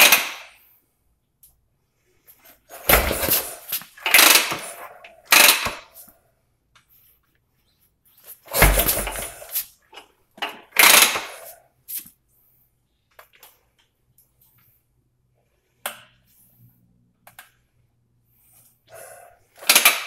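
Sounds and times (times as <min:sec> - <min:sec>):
motorcycle kick-starter kicks: 0:02.8 - 0:04.7, 0:08.5 - 0:09.5.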